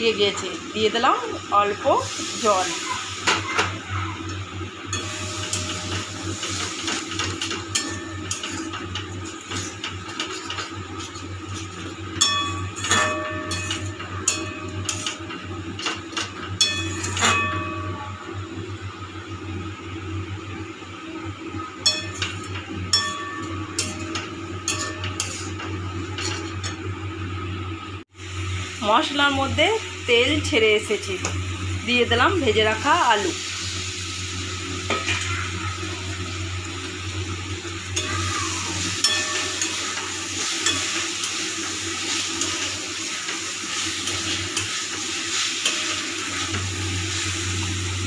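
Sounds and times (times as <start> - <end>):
metal spatula scraping pan: 4.9 - 15.2, 21.9 - 26.7.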